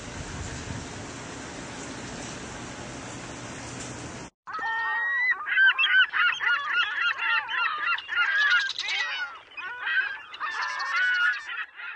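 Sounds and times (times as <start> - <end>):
flock of birds calling: 4.5 - 11.9.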